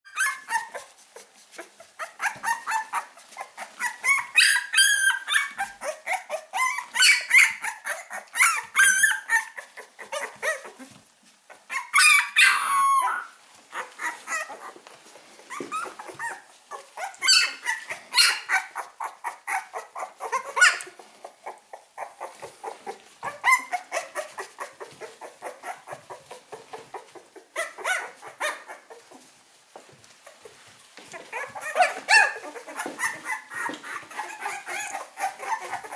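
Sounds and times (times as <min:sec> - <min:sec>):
puppies squeaking and whimpering: 0:00.1 - 0:35.9.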